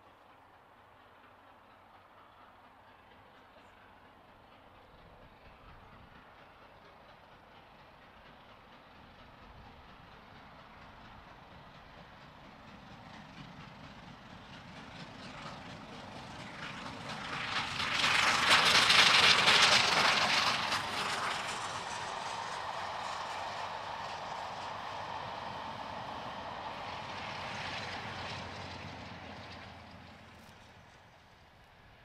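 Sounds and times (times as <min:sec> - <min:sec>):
steam locomotive passing: 0:00.0 - 0:32.0
coaches rolling by: 0:10.3 - 0:32.0.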